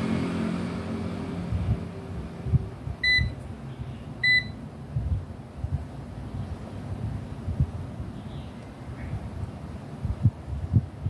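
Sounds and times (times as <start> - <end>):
multimeter beeps: 3.0 - 3.4, 4.2 - 4.6.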